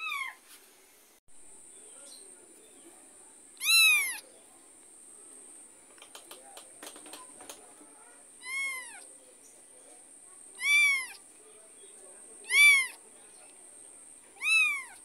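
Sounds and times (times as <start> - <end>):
kitten meowing: 3.6 - 4.2, 8.4 - 9.0, 10.6 - 11.2, 12.4 - 13.0, 14.4 - 15.0
soft clicks: 5.9 - 7.7.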